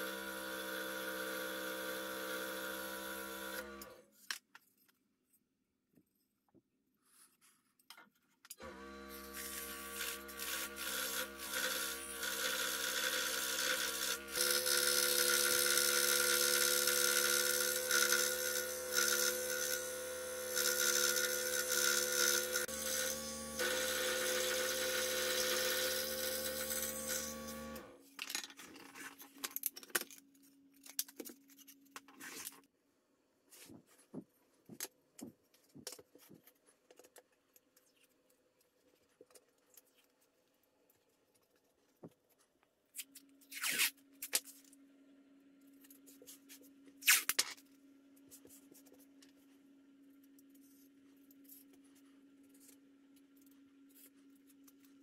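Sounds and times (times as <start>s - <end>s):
scroll saw cutting wood: 0.0s - 4.0s, 8.6s - 28.0s.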